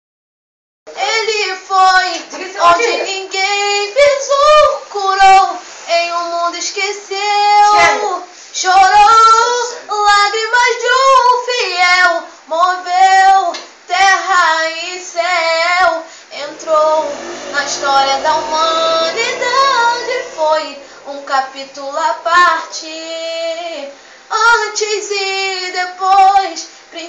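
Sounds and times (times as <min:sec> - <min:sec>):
girl singing solo: 0:15.0 - 0:23.3.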